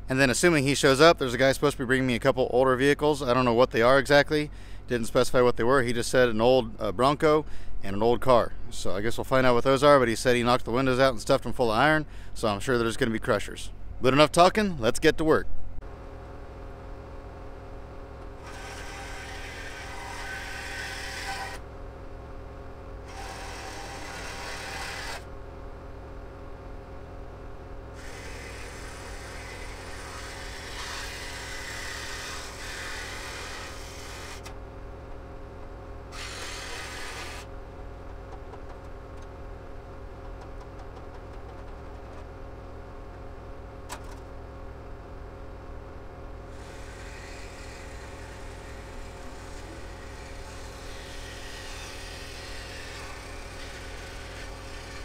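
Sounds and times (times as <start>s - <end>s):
reciprocating saw cutting metal pipe: 18.4s - 21.6s, 23.0s - 25.3s, 27.9s - 34.5s, 36.1s - 37.5s, 46.5s - 55.0s
engine hum: 37.4s - 46.5s.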